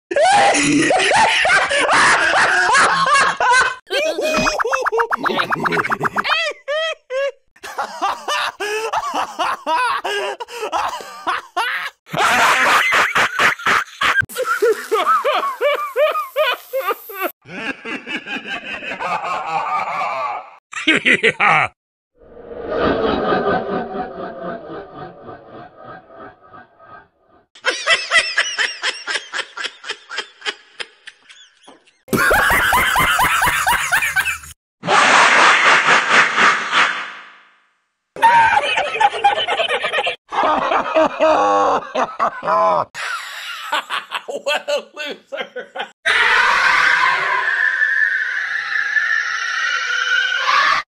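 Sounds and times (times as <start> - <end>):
cartoon character laughing: 0.1 - 21.8, 27.6 - 35.3, 38.2 - 42.9, 43.7 - 46.0.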